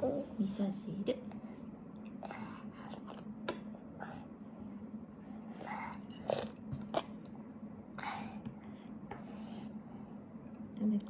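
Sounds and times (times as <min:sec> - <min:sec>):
soft eating noises: 0:00.0 - 0:11.0
steady low hum: 0:00.0 - 0:11.0.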